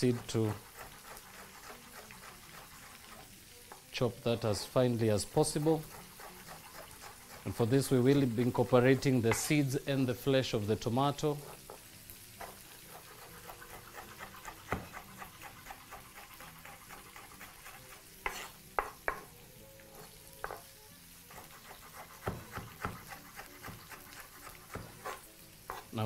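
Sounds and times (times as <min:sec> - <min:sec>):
knife chopping on wooden board: 0:12.4 - 0:19.3, 0:21.4 - 0:25.9.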